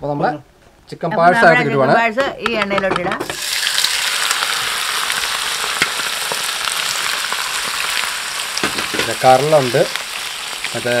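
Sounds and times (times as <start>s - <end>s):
meat sizzling in hot oil: 3.2s - 11.0s.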